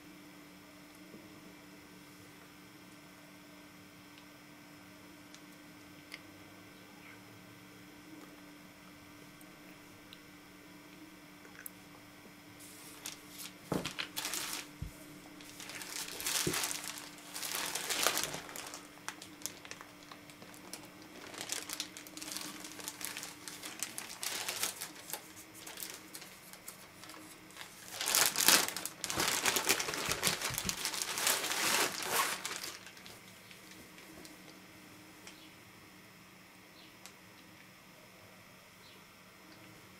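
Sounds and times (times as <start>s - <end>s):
plastic bag crinkling: 12.7s - 34.4s.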